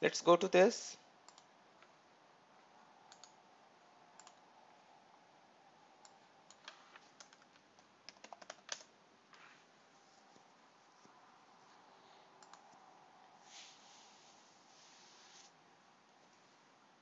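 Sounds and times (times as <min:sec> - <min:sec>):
computer keyboard typing: 0:03.1 - 0:03.4, 0:04.2 - 0:04.4, 0:06.0 - 0:08.9, 0:12.4 - 0:12.8.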